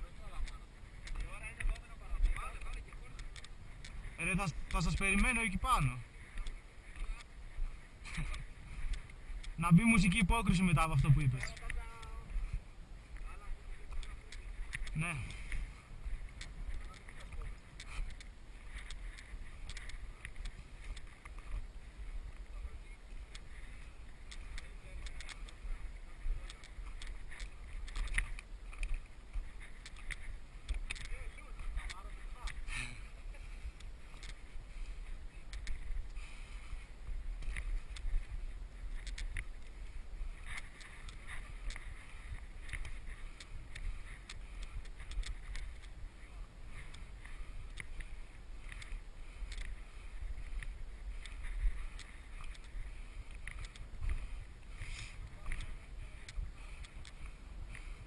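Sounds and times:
wind rumbling on microphone: 0.0 - 58.0
stones clicking together: 13.9 - 15.0, 16.4 - 21.4, 26.4 - 29.0, 29.8 - 31.2, 38.9 - 39.7, 42.6 - 45.9.

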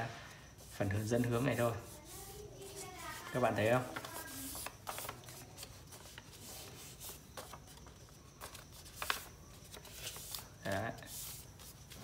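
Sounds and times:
paper rustling and crinkling: 1.6 - 12.0.

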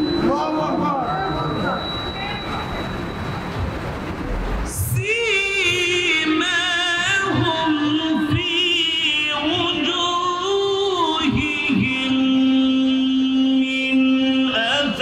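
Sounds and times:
man chanting melodically: 4.8 - 15.0.

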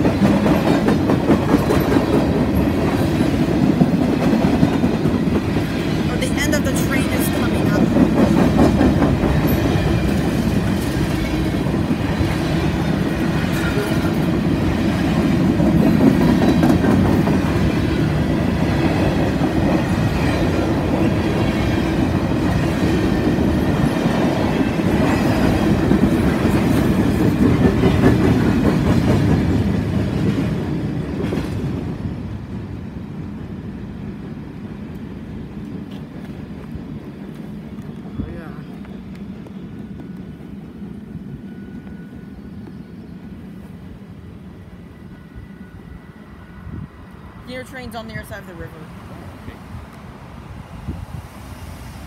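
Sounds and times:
freight train wheels rumbling: 0.0 - 52.0.

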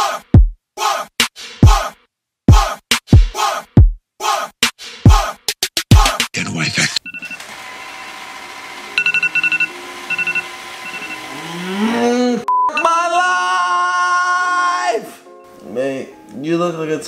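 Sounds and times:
short electronic beeps: 9.0 - 11.2, 12.5 - 12.9
long yawning groan: 11.3 - 12.5.

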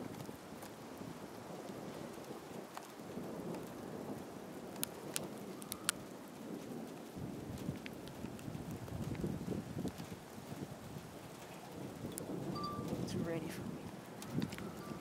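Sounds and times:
low rumble of thunder: 0.0 - 15.0
steady rain falling: 0.0 - 15.0.

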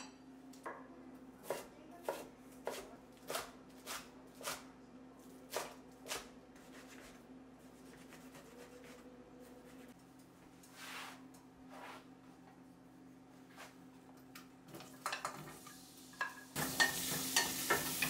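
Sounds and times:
knife chopping on wooden board: 1.4 - 4.6.

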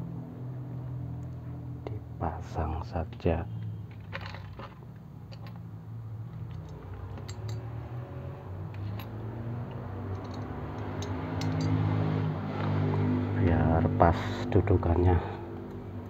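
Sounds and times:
metal parts clicking and tapping: 3.6 - 5.7, 6.3 - 7.8, 8.7 - 11.8.

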